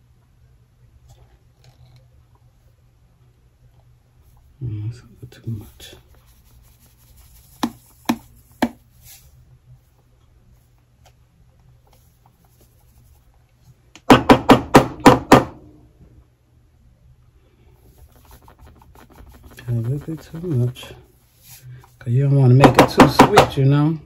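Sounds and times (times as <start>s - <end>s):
measuring cup knocking plastic jar: 7.4s - 8.8s, 17.9s - 21.0s, 22.6s - 23.6s.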